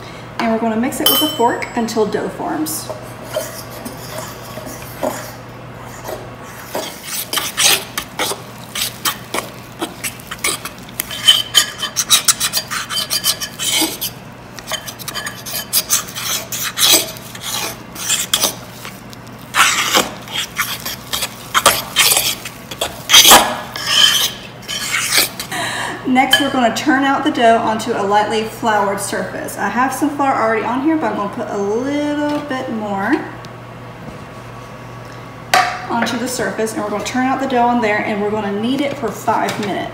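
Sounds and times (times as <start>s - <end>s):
fork scraping a mixing bowl: 2.9s - 25.5s.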